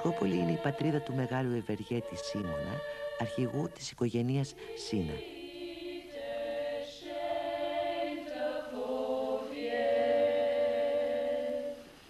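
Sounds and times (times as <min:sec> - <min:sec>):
choir chanting unaccompanied: 0:00.0 - 0:11.9.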